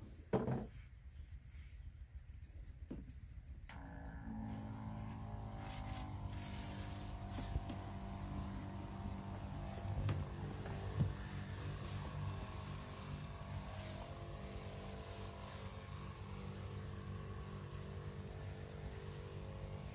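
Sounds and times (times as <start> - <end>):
pump motor humming: 3.7 - 19.9
spray hissing from nozzle: 5.7 - 19.9.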